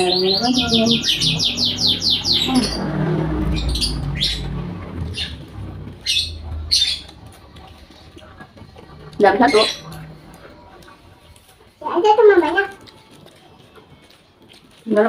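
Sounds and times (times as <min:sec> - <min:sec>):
bird trilling and chirping: 0:00.0 - 0:11.2
low rumble: 0:00.2 - 0:11.8.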